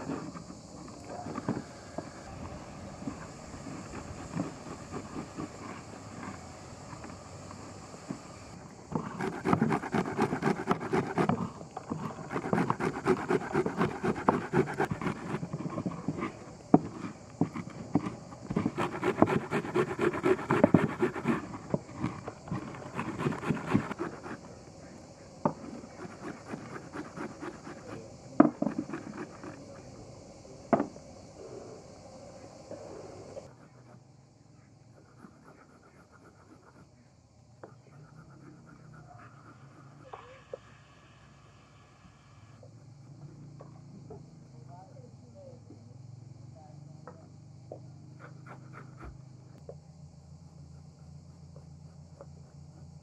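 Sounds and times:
onion grating on metal grater: 0:09.0 - 0:11.4, 0:12.0 - 0:16.2, 0:18.6 - 0:21.5, 0:22.6 - 0:24.4, 0:25.8 - 0:28.0.

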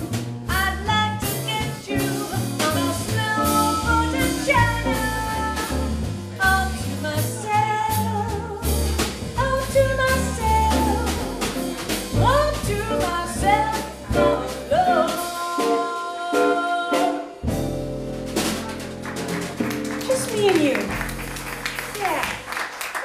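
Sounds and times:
upright bass walking: 0:00.0 - 0:15.5, 0:17.4 - 0:22.5
drum kit with cymbals: 0:00.0 - 0:22.5
woman singing into microphone: 0:09.4 - 0:11.6, 0:12.2 - 0:17.3.

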